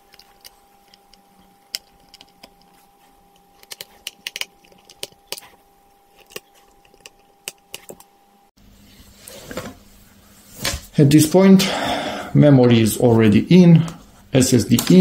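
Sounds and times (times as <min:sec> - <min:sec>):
screwdriver clicking on screws: 0:03.6 - 0:05.4.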